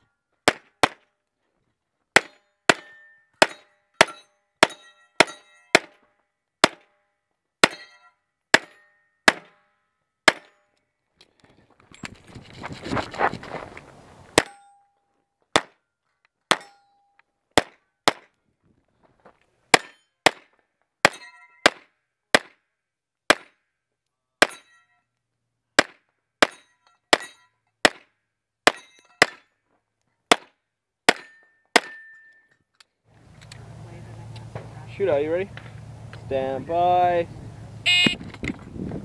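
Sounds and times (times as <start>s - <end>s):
steel targets ringing: 2.2s - 5.8s, 7.6s - 10.7s, 21.1s - 21.7s, 24.4s - 25.0s, 31.1s - 32.5s.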